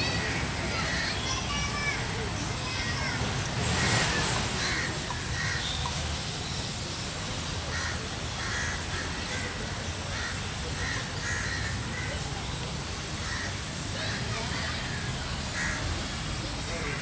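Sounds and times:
outdoor background noise: 0.0 - 17.0
crows cawing: 3.8 - 5.8, 7.7 - 12.1, 13.2 - 15.8.

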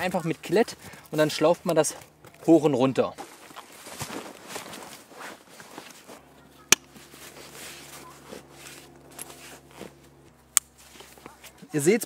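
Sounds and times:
backpack straps rustling: 3.2 - 11.7.

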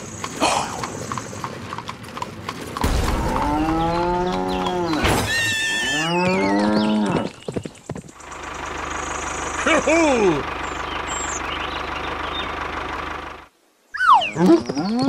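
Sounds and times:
cow mooing: 3.2 - 5.0, 5.7 - 7.3.

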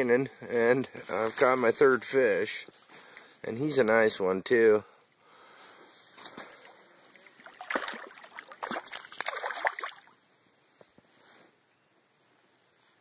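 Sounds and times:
water splashing and sloshing: 6.4 - 10.2.

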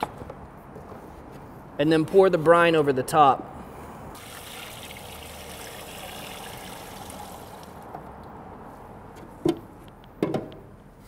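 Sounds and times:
liquid pouring and splashing: 4.2 - 7.8.

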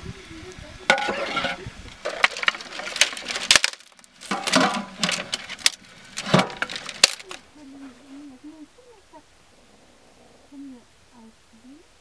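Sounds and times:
metal pot lid clanking: 0.9 - 2.5, 4.3 - 5.4
metal ladle scraping a pot: 0.9 - 3.4.

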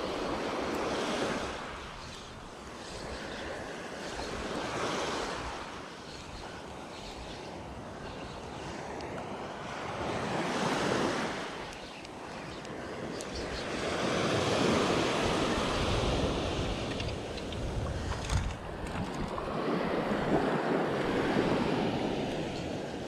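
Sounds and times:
small waves breaking on beach: 0.0 - 23.0
wind buffeting microphone: 0.0 - 23.0.

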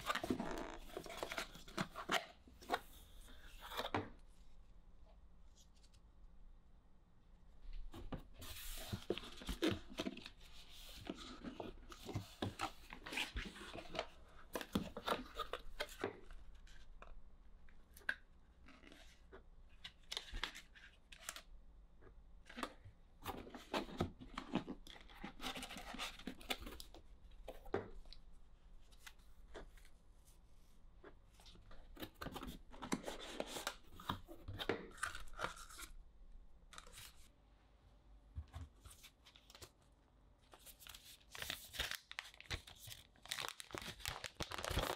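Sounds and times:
cardboard and paper rustling: 0.0 - 4.2, 7.8 - 16.8, 22.6 - 28.1, 40.5 - 44.9.

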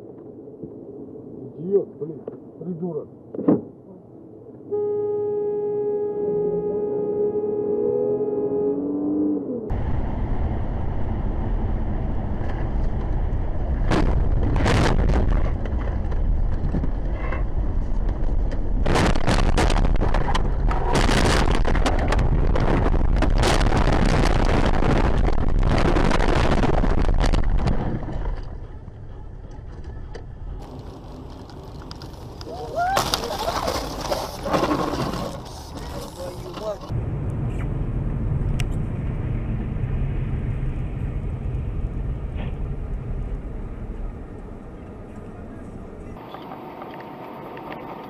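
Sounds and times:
car road and wind rumble: 0.0 - 4.8, 6.0 - 48.0
knocks and scraping: 12.4 - 37.7.

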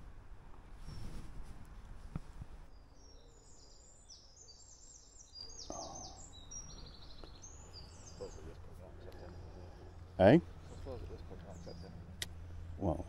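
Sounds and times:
faint outdoor background noise: 0.0 - 13.0
songbird singing: 2.6 - 13.0.

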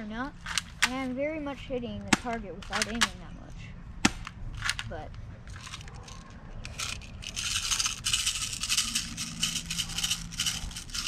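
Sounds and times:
airsoft pistol rattling and scraping: 0.4 - 1.1, 2.2 - 3.2, 4.2 - 11.0.

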